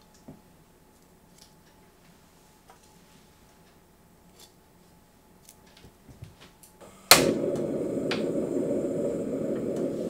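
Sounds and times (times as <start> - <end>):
gas burner flame rushing: 6.8 - 10.0
igniter snap: 6.8 - 10.0.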